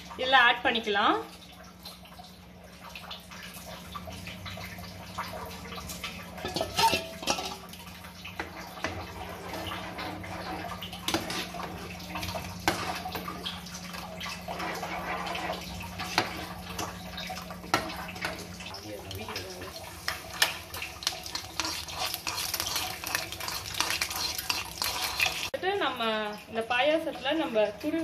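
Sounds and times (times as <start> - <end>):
wet sloshing and stirring: 1.5 - 25.6
ladle clinking against metal pan: 6.4 - 7.6.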